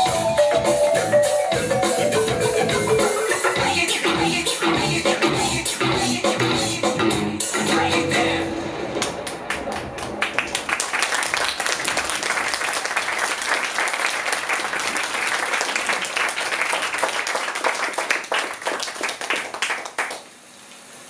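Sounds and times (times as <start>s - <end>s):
audience applause: 8.9s - 20.3s.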